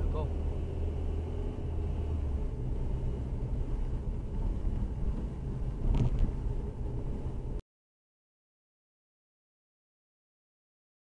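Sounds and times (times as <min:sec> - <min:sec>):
car engine and road rumble: 0:00.0 - 0:07.6.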